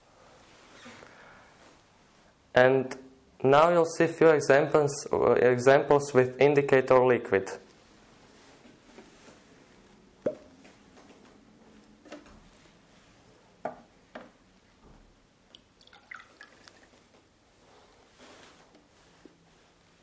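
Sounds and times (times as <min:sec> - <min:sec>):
liquid dripping and trickling: 0:15.5 - 0:17.0.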